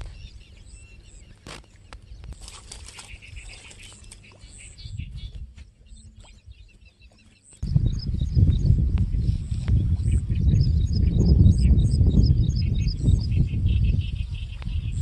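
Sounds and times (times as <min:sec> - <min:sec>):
birds chirping faintly: 0:00.0 - 0:15.0
wind rumble on microphone: 0:00.0 - 0:15.0.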